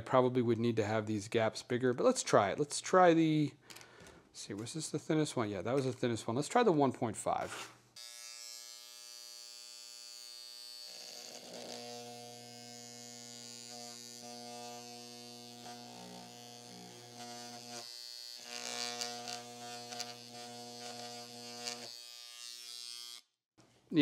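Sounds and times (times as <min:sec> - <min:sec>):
electric engraver buzzing on metal: 0:08.0 - 0:23.3.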